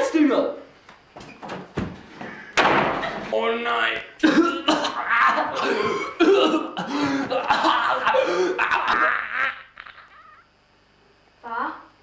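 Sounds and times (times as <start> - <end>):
man groaning: 4.2 - 9.1
man coughing and choking: 4.2 - 10.4.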